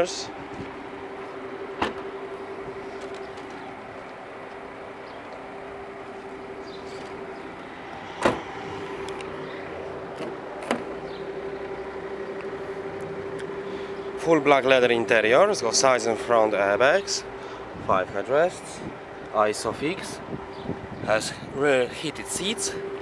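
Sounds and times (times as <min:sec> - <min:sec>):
car door latch clicks: 0:01.8 - 0:02.1, 0:08.2 - 0:08.5, 0:10.1 - 0:11.0.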